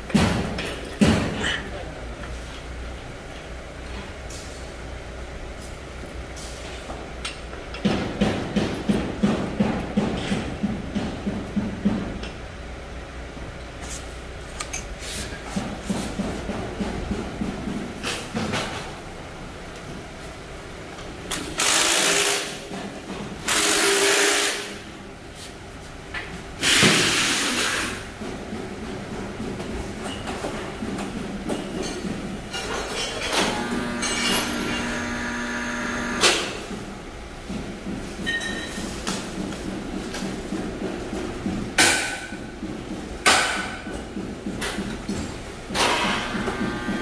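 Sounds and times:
steady low hum: 33.3s - 38.0s
hand tool strokes: 33.4s - 36.5s.

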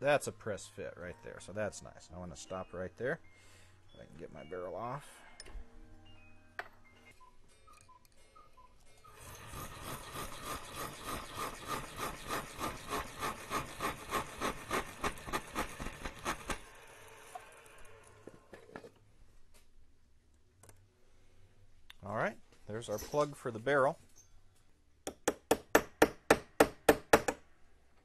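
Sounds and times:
hand saw cutting metal rod: 9.1s - 16.6s.

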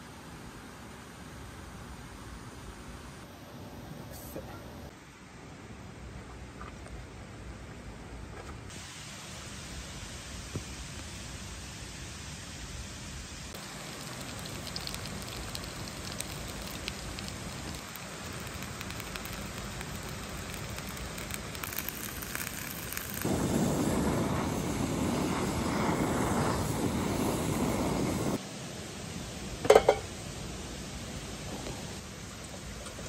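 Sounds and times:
peppers sizzling in frying pan: 13.4s - 28.4s, 29.6s - 30.2s.

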